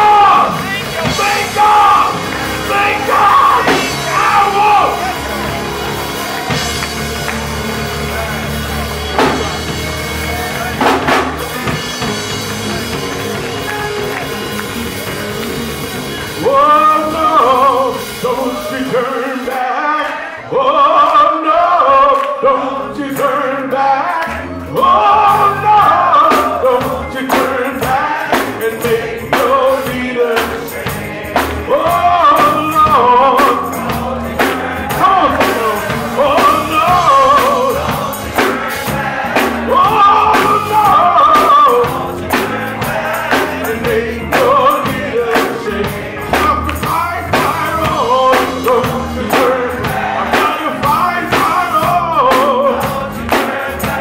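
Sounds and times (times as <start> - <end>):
person singing into microphone: 0.0 - 5.2, 16.4 - 54.0
percussion hits: 0.0 - 19.6, 25.2 - 54.0
keyboard chords: 0.0 - 54.0.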